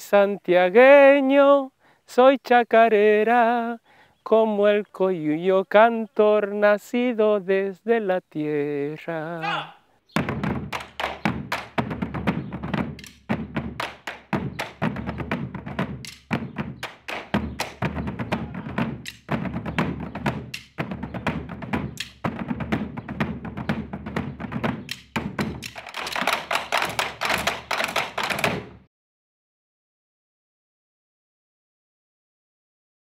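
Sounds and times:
deep drum thuds: 10.2s - 28.9s
sharp wooden stick clacks: 13.0s - 14.8s, 16.0s - 17.8s, 19.0s - 19.3s, 20.5s - 20.8s, 22.0s - 22.2s, 24.8s - 28.6s.

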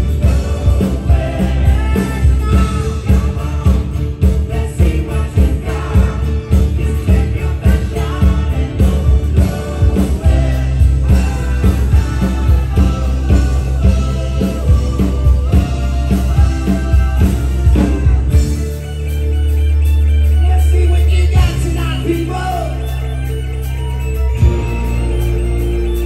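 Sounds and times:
person singing: 0.0s - 18.9s
live rock band playing: 0.0s - 26.0s.

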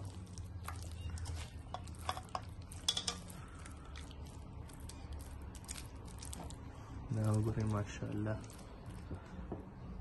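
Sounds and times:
wet squelches of hands mixing: 0.0s - 9.4s
low steady hum: 0.0s - 10.0s.

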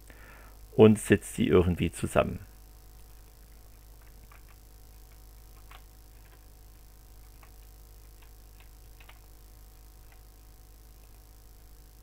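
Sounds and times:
low electrical hum: 0.0s - 12.0s
computer keyboard and mouse clicks: 4.0s - 9.3s, 10.0s - 10.3s.

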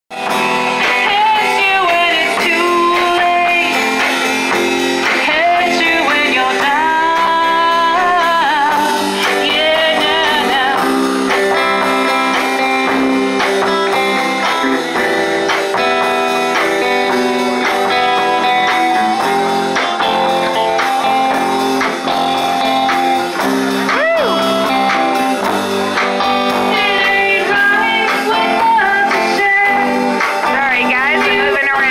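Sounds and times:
strummed electric guitars: 0.1s - 31.9s
woman singing with vibrato: 0.8s - 3.8s, 5.2s - 10.8s, 26.6s - 30.0s.

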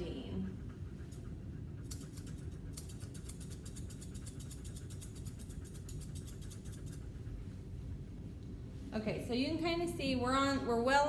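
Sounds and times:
low steady rumble: 0.0s - 11.0s
scissors snipping hair: 1.8s - 7.1s.

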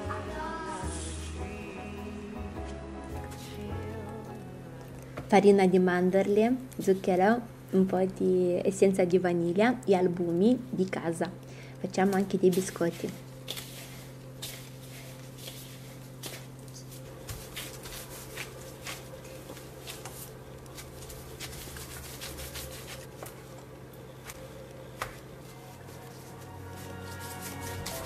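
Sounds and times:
faint hum: 0.0s - 28.0s
plastic gloves rustling: 11.9s - 28.0s.

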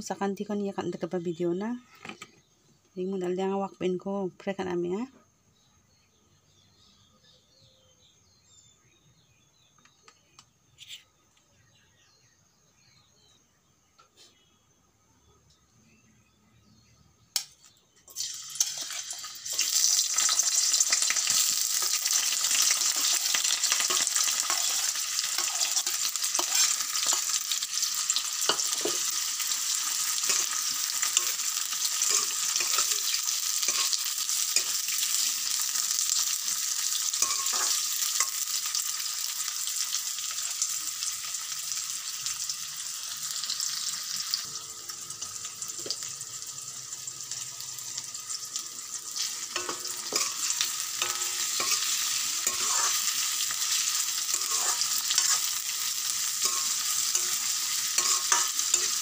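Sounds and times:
onions sizzling in hot oil: 18.1s - 59.0s
metal spatula scraping pan: 22.6s - 27.8s, 28.4s - 35.2s, 37.1s - 38.4s, 49.2s - 55.6s, 56.2s - 59.0s.

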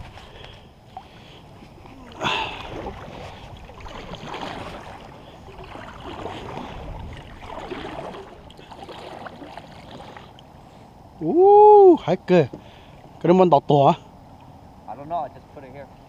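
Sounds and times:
paddle strokes splashing water: 0.0s - 10.8s.

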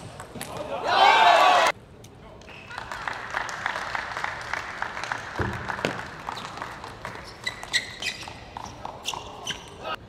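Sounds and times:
audience applauding: 2.7s - 7.3s.

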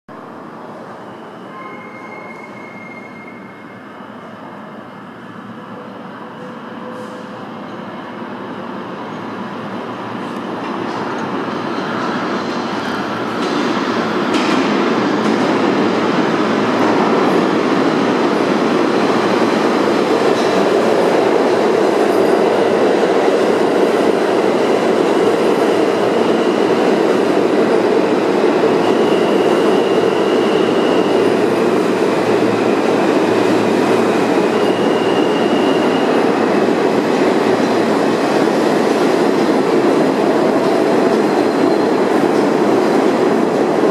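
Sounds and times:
subway train rumbling: 0.1s - 43.9s
high squeals: 1.0s - 3.9s.

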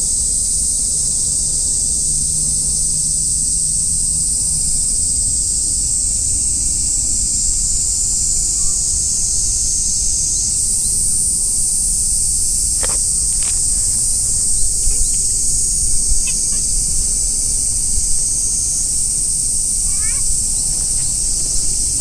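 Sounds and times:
high-pitched insect chorus: 0.0s - 22.0s
wind rumble on microphone: 12.5s - 22.0s.

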